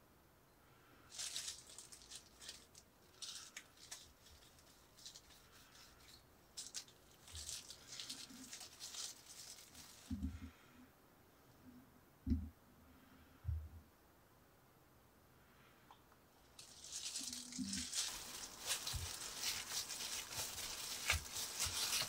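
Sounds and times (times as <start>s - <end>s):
plastic glove crinkling: 1.1s - 10.4s, 16.5s - 22.0s.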